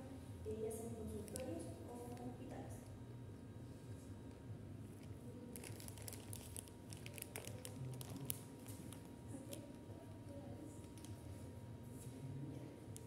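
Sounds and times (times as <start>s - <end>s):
low steady hum: 0.0s - 13.0s
crinkling crackling clicks: 1.2s - 2.3s, 5.0s - 9.8s, 10.8s - 11.2s.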